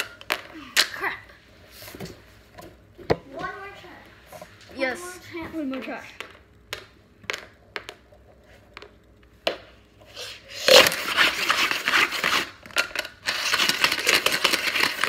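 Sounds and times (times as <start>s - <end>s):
dice clicking on wooden floor: 6.2s - 9.7s
dice rattling in a cup: 10.7s - 15.0s.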